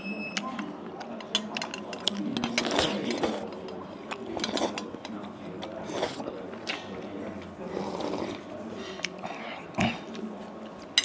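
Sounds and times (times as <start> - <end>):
chopsticks clicking against bowl: 0.4 - 7.1
chewing: 0.4 - 11.0
person slurping soup: 2.5 - 6.4, 7.6 - 10.3.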